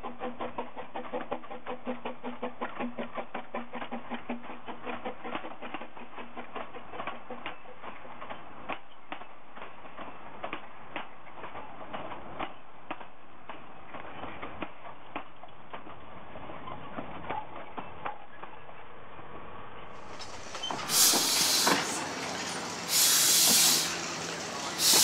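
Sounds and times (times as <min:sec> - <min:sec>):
train wheels clicking: 0:20.0 - 0:25.0.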